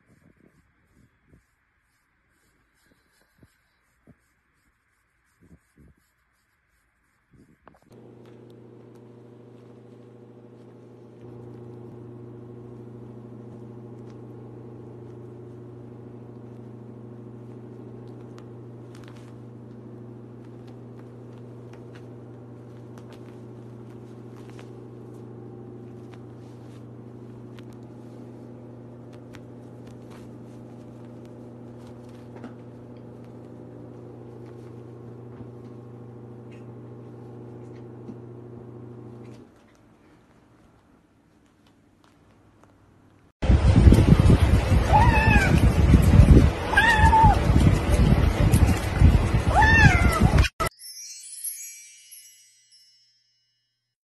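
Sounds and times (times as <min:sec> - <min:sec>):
low machine hum: 0:07.9 - 0:39.5, 0:43.4 - 0:50.5.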